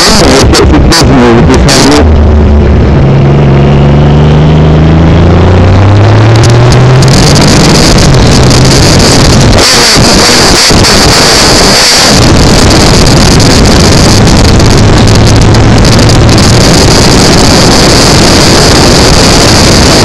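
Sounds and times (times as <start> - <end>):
motorcycle engine: 0.0 - 20.0
wind buffeting microphone: 6.7 - 20.0.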